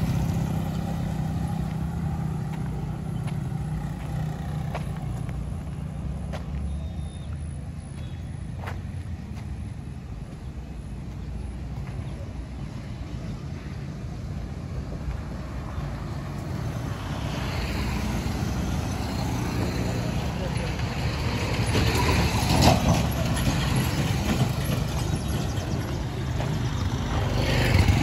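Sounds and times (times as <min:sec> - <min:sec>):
motorcycle passing by: 0:00.0 - 0:07.3, 0:15.2 - 0:28.0
distant traffic rumble: 0:00.0 - 0:28.0.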